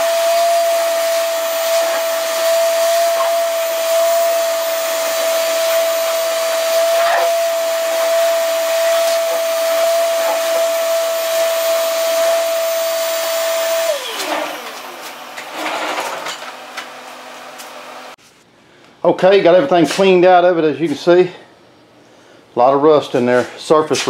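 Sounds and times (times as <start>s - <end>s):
shop vacuum whining: 0.0s - 18.2s.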